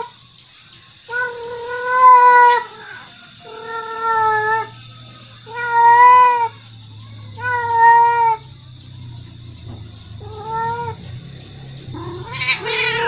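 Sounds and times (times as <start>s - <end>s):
steady high-pitched whine: 0.0s - 13.0s
cat yowling: 1.1s - 4.8s, 5.4s - 6.6s, 7.2s - 8.5s, 10.2s - 11.1s, 11.8s - 13.0s.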